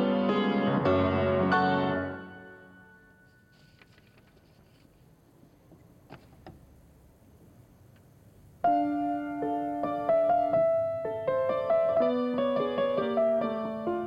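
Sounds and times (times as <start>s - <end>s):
grand piano playing: 0.0s - 3.5s, 8.6s - 14.0s.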